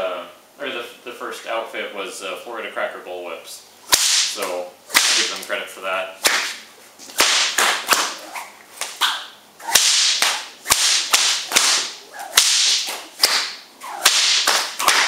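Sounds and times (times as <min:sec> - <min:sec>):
whip cracking: 0:03.9 - 0:05.5, 0:06.2 - 0:15.0
whip swishing through air: 0:03.9 - 0:05.5, 0:06.2 - 0:15.0.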